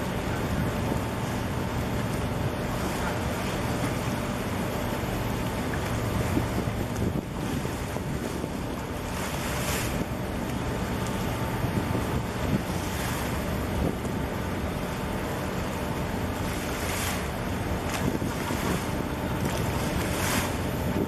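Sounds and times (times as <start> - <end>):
harbour water noise: 0.0 - 21.0
steady low rumble: 0.0 - 21.0
wind buffeting microphone: 5.9 - 15.0, 16.4 - 21.0.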